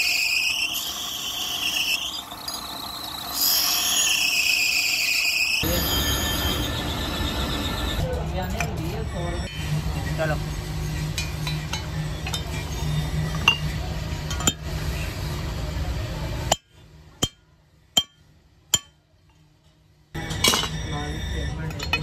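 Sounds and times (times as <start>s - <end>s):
steady low hum: 5.6s - 22.0s
metal parts clinking: 20.2s - 20.8s.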